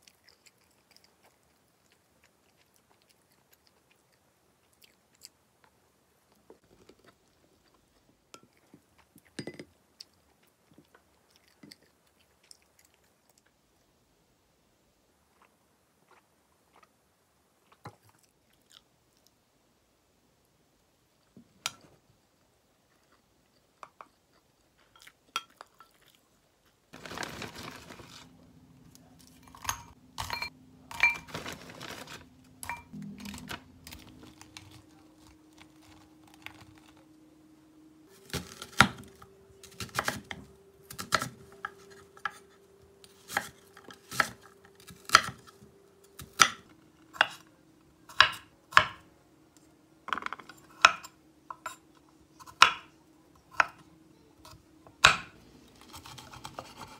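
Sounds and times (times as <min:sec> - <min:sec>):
quiet chewing: 0:00.0 - 0:13.9, 0:15.3 - 0:17.0, 0:17.6 - 0:19.4, 0:22.8 - 0:27.0, 0:32.9 - 0:37.2.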